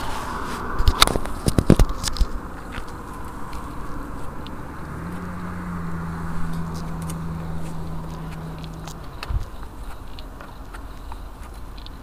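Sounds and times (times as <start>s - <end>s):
steady low hum: 0.0s - 12.0s
footsteps crunching on dirt: 6.2s - 12.0s.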